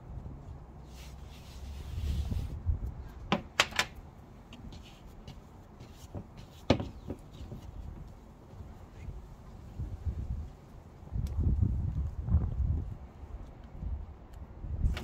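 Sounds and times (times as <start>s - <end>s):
hand rubbing flour on board: 0.8s - 2.6s, 4.5s - 8.1s.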